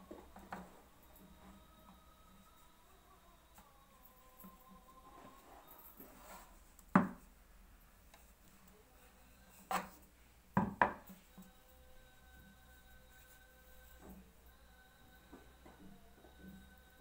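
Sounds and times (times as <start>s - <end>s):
wooden knocks: 10.6s - 11.1s.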